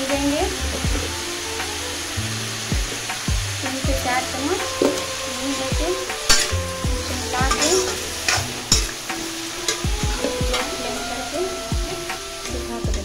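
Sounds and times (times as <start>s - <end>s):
oil sizzling in pan: 0.0s - 13.0s
metal spatula scraping pan: 4.6s - 12.5s.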